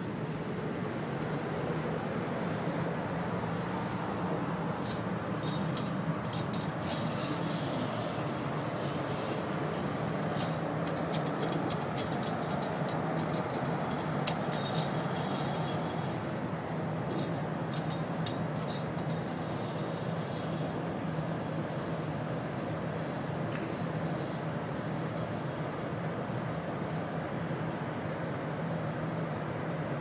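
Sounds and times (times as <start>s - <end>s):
metallic clicks and jingles: 4.8s - 16.4s.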